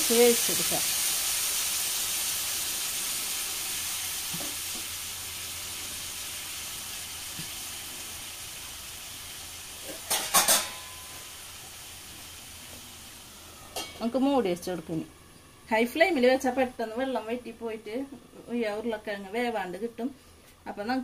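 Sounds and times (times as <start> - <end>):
potatoes sizzling in a pan: 0.0 - 15.1.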